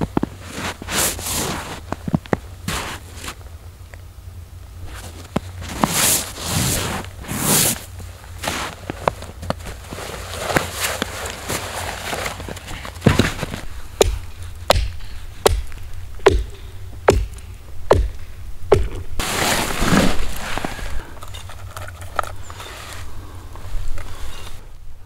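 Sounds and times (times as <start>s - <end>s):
rushing scrape: 4.9s - 8.8s, 19.2s - 23.1s
sharp knocks: 13.0s - 19.2s.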